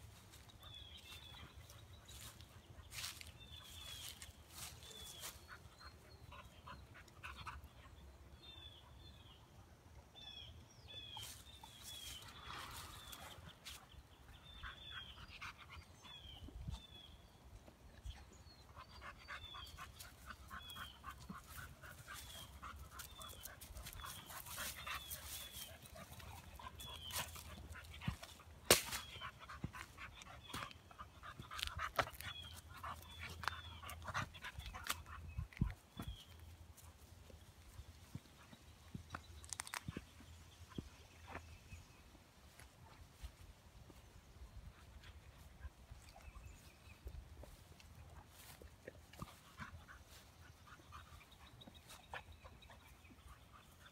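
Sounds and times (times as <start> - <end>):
scuffling through dry leaves: 2.1 - 5.5
dogs panting: 18.0 - 37.0, 44.6 - 53.9.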